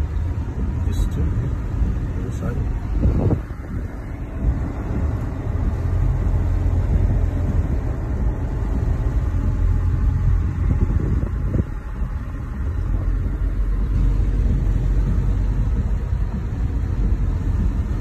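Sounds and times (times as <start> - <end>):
car cabin rumble: 0.0 - 18.0.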